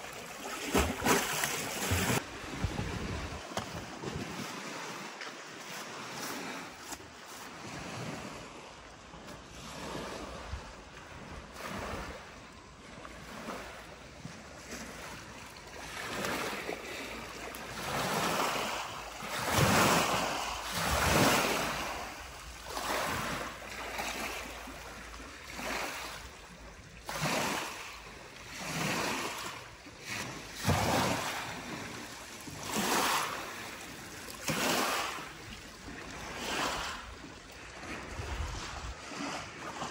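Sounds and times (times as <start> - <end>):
waves washing onto pebble shore: 15.9 - 26.2, 27.1 - 37.0.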